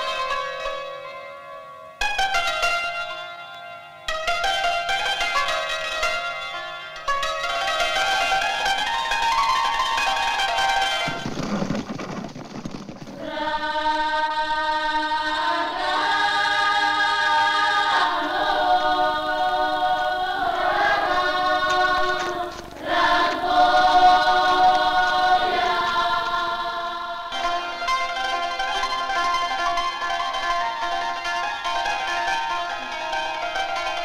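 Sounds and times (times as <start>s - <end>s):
noise: 0.0s - 34.0s
choir singing held chords: 13.2s - 34.0s.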